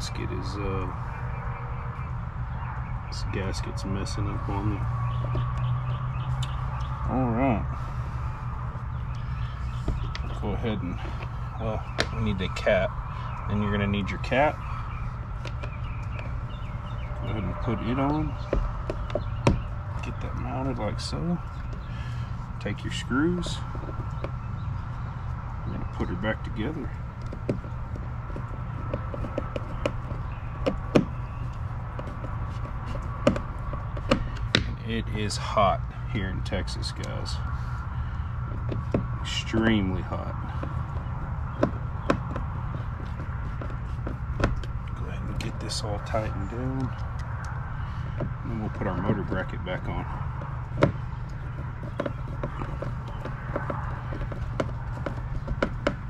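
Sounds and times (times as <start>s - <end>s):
steady low hum: 0.0s - 56.0s
hardware clicks and taps: 15.0s - 20.3s, 26.8s - 34.8s, 38.5s - 56.0s.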